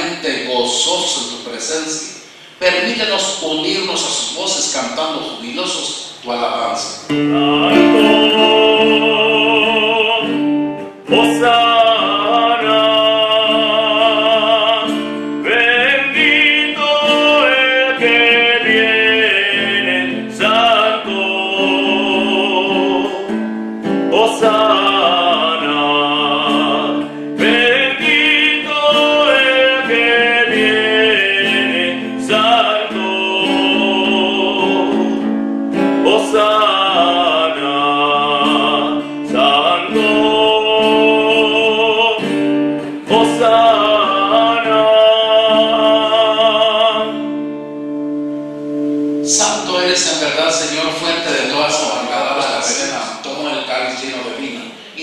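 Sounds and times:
guitar chords: 6.9 - 53.4
solo voice singing a hymn: 7.1 - 23.4, 24.0 - 35.3, 36.0 - 47.4.

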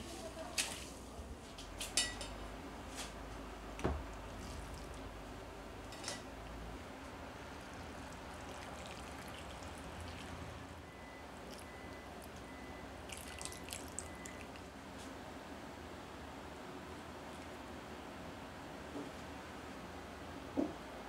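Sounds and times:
liquid pouring into ceramic bowl: 8.1 - 10.5, 13.0 - 14.6.

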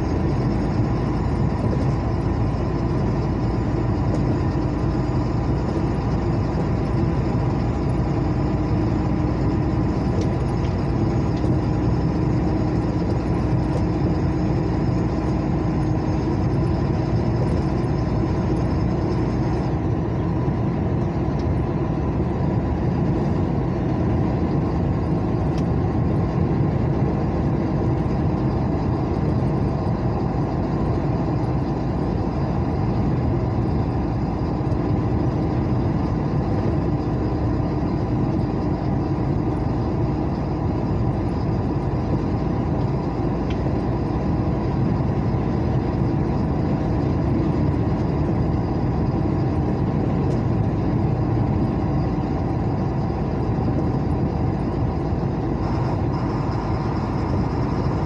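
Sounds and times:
car cabin road and engine noise: 0.0 - 58.0.

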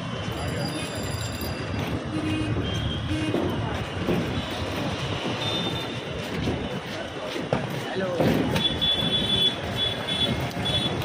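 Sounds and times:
vehicle traffic: 0.0 - 11.0
car horns: 2.0 - 3.6, 8.5 - 11.0
scattered voices: 6.2 - 8.8.

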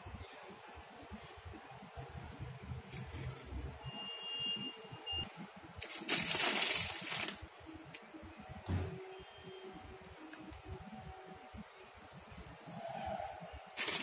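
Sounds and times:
glass bangles clinking: 2.8 - 3.6.

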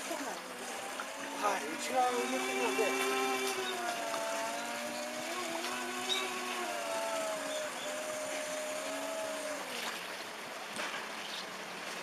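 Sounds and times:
flowing water rush: 0.0 - 12.0.

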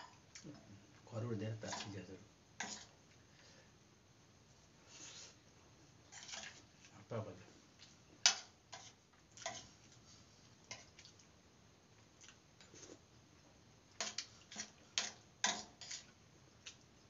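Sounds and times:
wet chewing and smacking: 12.2 - 12.8.

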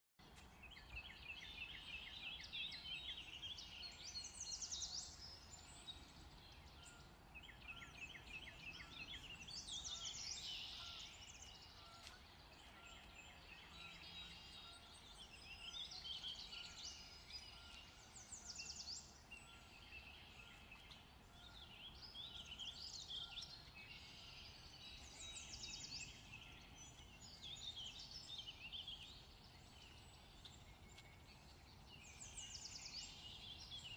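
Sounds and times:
birds singing: 0.3 - 33.9.

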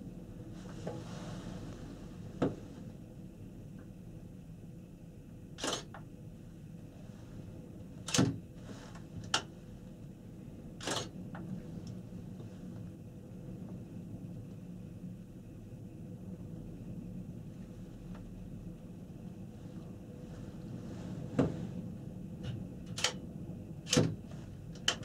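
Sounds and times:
faint steady hum: 0.0 - 25.0
gondola cabin rumble: 0.0 - 25.0.

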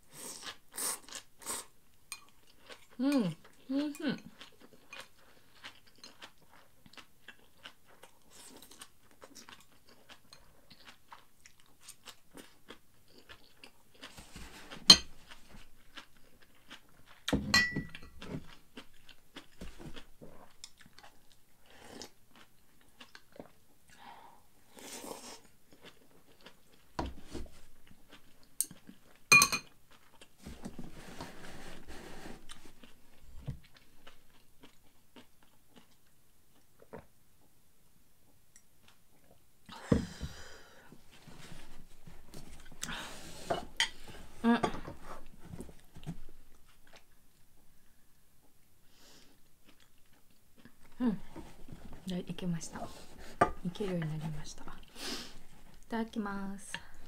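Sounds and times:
person chewing: 0.2 - 24.1, 24.7 - 30.4, 32.2 - 37.2, 42.3 - 52.1
chopsticks clinking on ceramic bowl: 17.5 - 18.1, 29.3 - 29.7.

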